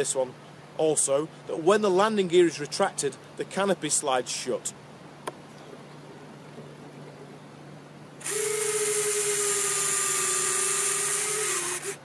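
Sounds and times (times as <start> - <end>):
small motor mechanical whine: 8.2 - 12.0.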